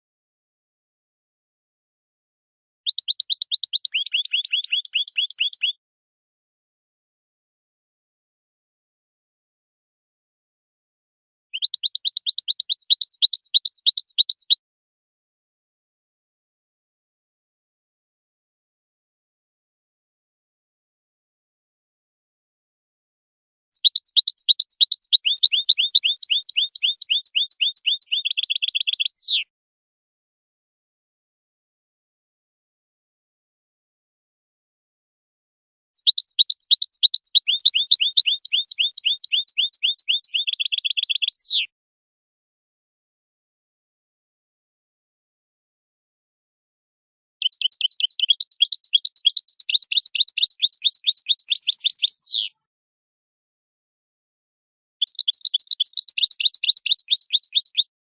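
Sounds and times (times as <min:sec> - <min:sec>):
goldfinch singing chirping notes: 0:02.9 - 0:05.8, 0:11.6 - 0:14.6, 0:23.8 - 0:29.4, 0:36.0 - 0:41.7, 0:47.4 - 0:52.6, 0:55.0 - 0:57.9.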